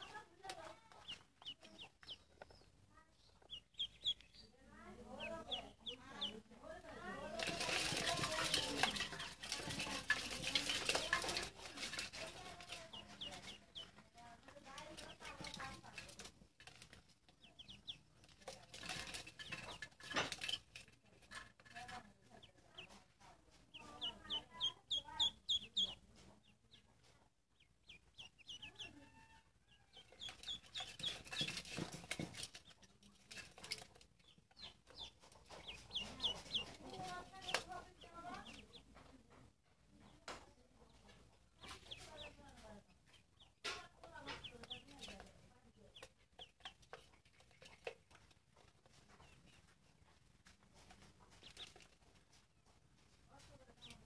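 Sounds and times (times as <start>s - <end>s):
ducklings peeping: 0.0s - 39.0s, 40.0s - 52.3s, 53.4s - 54.0s
plastic toy scraping metal basin: 6.8s - 13.9s, 14.7s - 22.2s, 30.1s - 38.6s.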